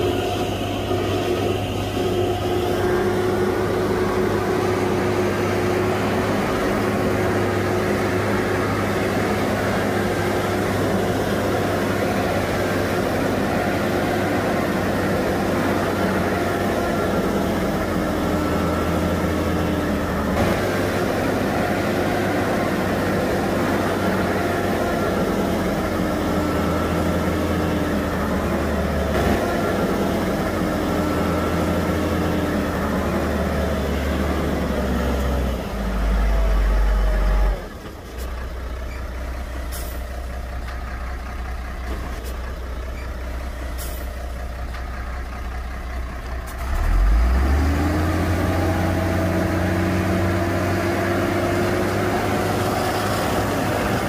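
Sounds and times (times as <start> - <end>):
bulldozer diesel engine: 0.0 - 54.0.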